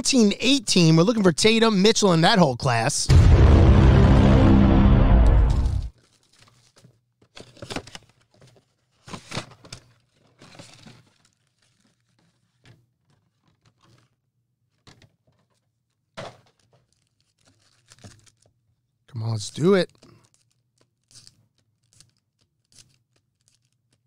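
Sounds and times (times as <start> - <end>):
foil packs crinkling: 6.0 - 14.2, 16.4 - 18.5, 20.0 - 24.0.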